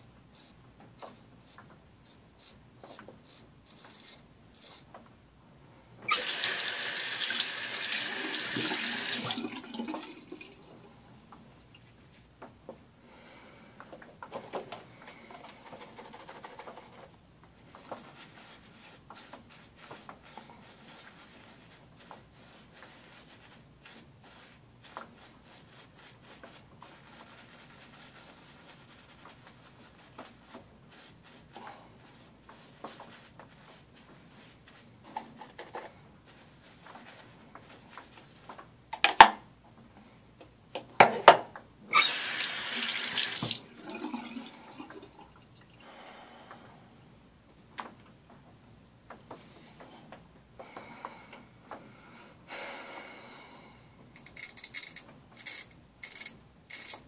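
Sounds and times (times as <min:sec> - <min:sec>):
shaving brush rubbing beard: 0:00.3 - 0:04.9.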